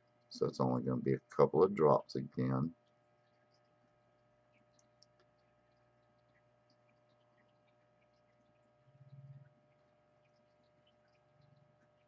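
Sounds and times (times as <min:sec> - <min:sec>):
faint electrical hum: 0:00.0 - 0:12.0.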